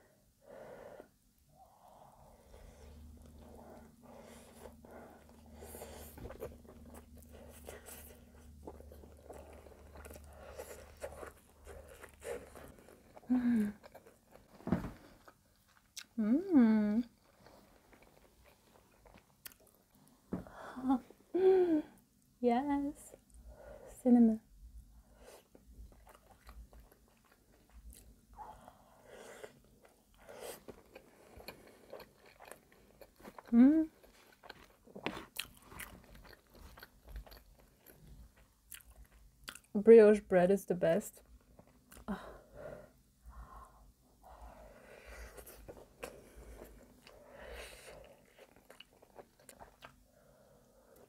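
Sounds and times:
close chewing: 3.0s - 16.1s, 25.5s - 28.2s, 29.8s - 39.7s, 45.3s - 50.0s
person humming: 16.2s - 17.1s, 20.6s - 22.0s.

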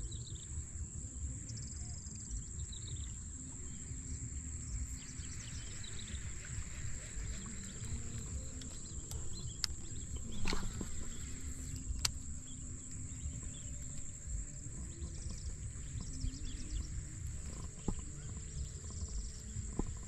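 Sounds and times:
high-pitched insect drone: 0.0s - 20.0s
wind rumble on microphone: 0.0s - 20.0s
sharp clicks: 7.8s - 14.2s.

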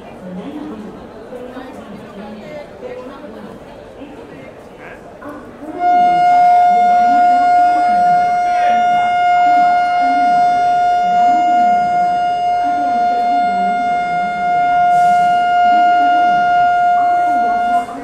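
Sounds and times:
train horn long steady note: 5.6s - 18.0s.

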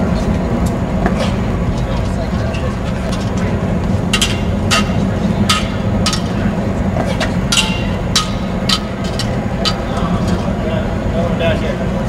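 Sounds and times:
low background rumble: 0.0s - 12.0s
sharp ringing knocks: 4.1s - 6.4s, 7.5s - 9.9s.

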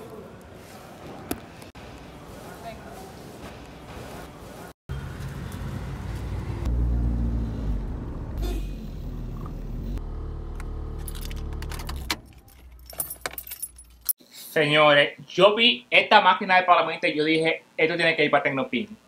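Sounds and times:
car engine and road rumble: 4.9s - 14.1s
keys jangling: 11.0s - 14.2s.

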